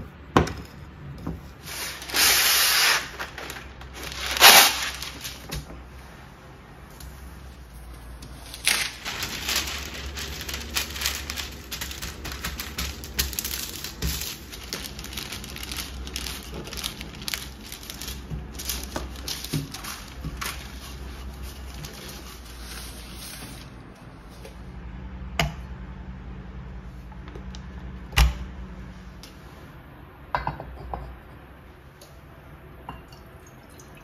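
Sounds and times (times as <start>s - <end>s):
baking paper crinkling: 1.6s - 5.8s, 7.6s - 24.5s.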